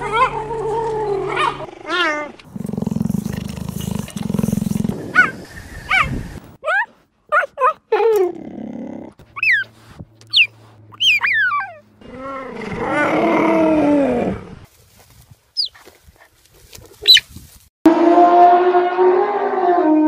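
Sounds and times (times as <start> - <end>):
cheetah chirping: 9.4 - 9.7, 10.3 - 11.8, 15.6 - 15.8, 17.0 - 17.2.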